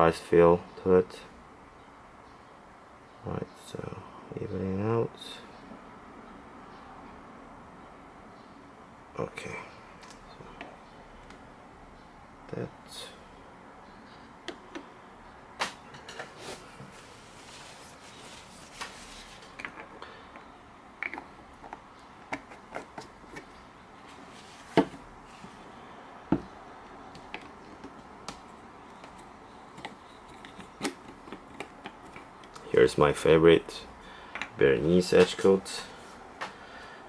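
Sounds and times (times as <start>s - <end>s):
jars clicking and knocking: 21.0s - 23.5s.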